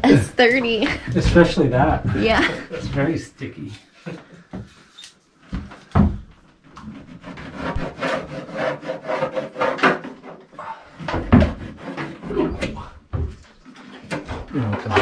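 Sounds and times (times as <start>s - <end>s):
hand tool working wood: 6.6s - 15.0s.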